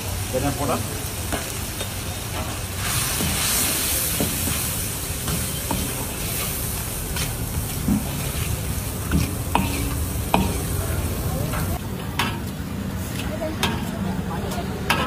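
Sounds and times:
food sizzling in oil: 0.0s - 11.8s
ladle scraping a wok: 1.8s - 10.8s.

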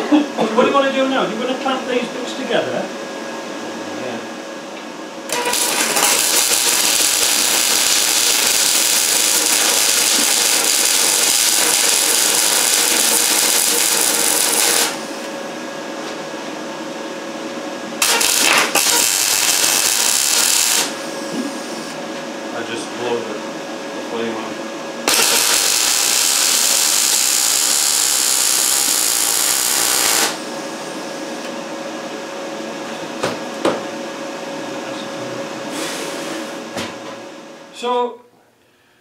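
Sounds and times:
welding arc crackling: 5.3s - 15.3s, 18.0s - 21.0s, 25.0s - 30.5s.

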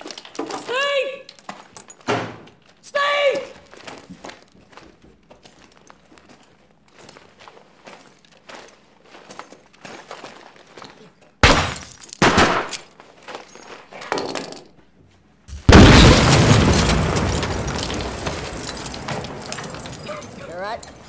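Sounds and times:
breaking and clattering debris: 0.0s - 2.1s, 15.5s - 21.0s
soft footsteps: 3.5s - 11.4s.

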